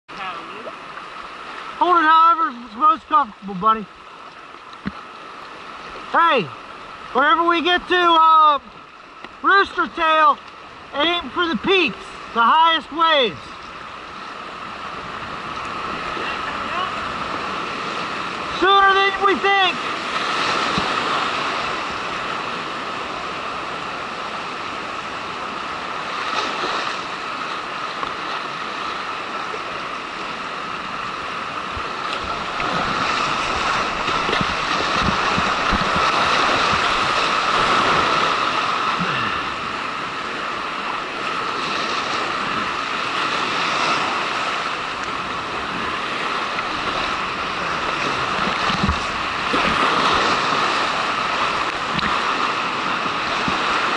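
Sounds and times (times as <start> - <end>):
paddle strokes splashing: 0.1 - 53.9
whitewater rushing: 0.1 - 53.9
water striking camera: 31.7 - 38.1, 48.0 - 49.9.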